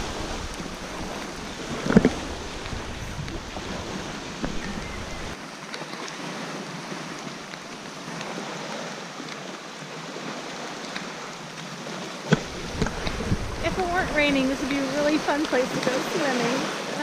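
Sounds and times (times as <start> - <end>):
wind rumble on microphone: 0.0 - 5.4, 11.1 - 17.0
choppy lake water: 0.0 - 17.0
steady rain: 0.0 - 17.0.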